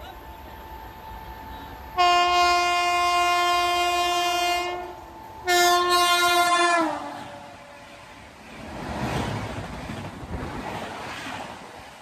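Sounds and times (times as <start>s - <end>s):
locomotive horn blasts: 2.0s - 7.8s.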